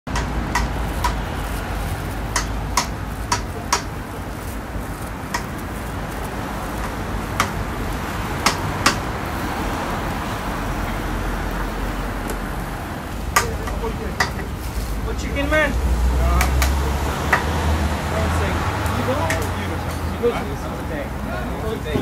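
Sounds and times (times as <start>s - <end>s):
metal spatula clacking on griddle: 0.1s - 1.2s, 2.3s - 4.0s, 5.3s - 5.6s, 8.4s - 9.0s, 13.3s - 14.5s.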